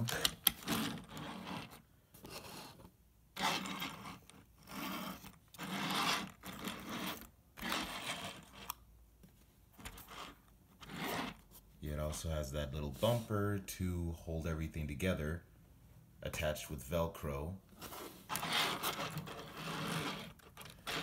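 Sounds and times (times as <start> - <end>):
plastic toy wheels rolling on desk: 0.0 - 1.8, 3.4 - 8.8, 17.9 - 21.0.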